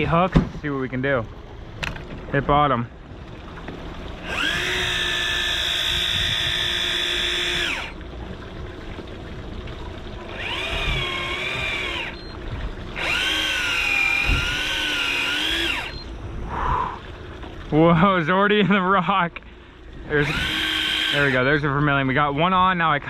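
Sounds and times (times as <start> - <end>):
electric fishing reel motor whining: 4.1 - 8.0, 10.1 - 16.2, 20.1 - 21.6.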